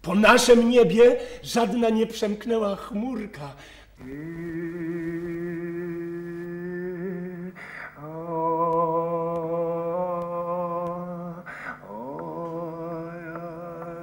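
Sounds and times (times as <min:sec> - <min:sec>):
breath: 0:01.2 - 0:01.4, 0:03.6 - 0:04.0, 0:07.6 - 0:08.0, 0:11.4 - 0:11.8
man singing low held notes: 0:04.0 - 0:14.0.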